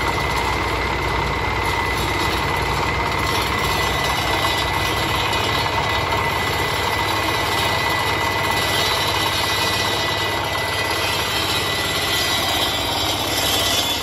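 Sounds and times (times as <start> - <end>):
diesel engine clatter: 0.0 - 14.0
saw blade grinding asphalt: 0.0 - 14.0.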